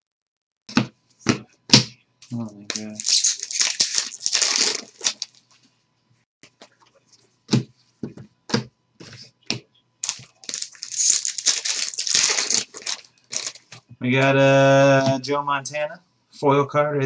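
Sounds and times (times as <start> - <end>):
card pack wrapper crinkling and tearing: 2.7 - 5.4, 10.0 - 13.7.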